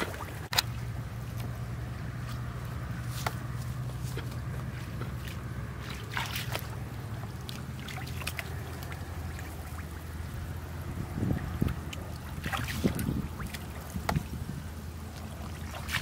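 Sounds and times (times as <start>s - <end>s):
splashes in shallow water: 0.0s - 1.0s, 4.0s - 16.0s
hands squelching in wet mud: 0.0s - 16.0s
steady low hum: 0.0s - 16.0s
water trickling: 4.6s - 16.0s.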